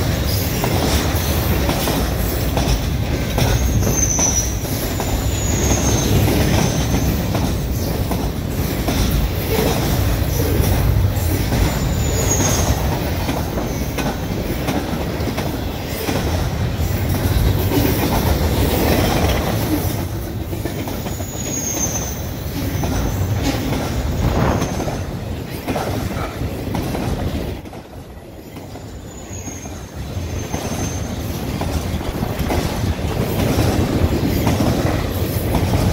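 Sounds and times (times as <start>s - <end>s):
freight train rumbling past: 0.0s - 35.9s
high wheel squeals: 3.4s - 7.3s, 21.1s - 23.4s, 29.0s - 31.3s.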